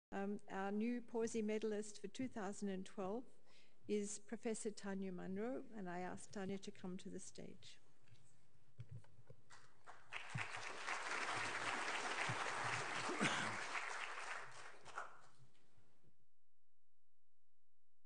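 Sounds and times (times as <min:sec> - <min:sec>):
audience applauding: 0:09.9 - 0:15.4.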